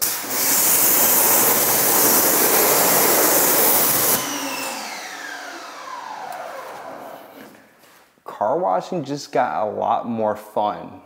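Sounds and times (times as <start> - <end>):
pressure washer spraying water: 0.0 - 5.8
machine winding down whine: 0.2 - 7.5.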